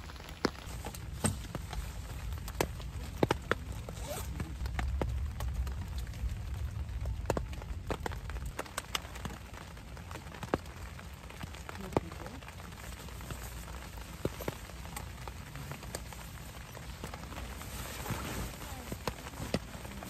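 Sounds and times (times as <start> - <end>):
low rumble: 0.0 - 12.8
raindrops tapping on tent fabric: 0.0 - 20.0.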